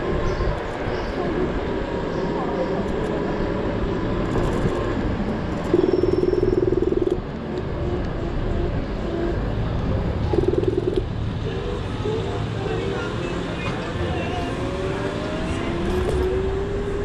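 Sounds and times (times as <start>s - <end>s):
wind and road noise: 0.0s - 17.0s
loud buzzing tone: 5.7s - 7.2s, 10.3s - 11.1s.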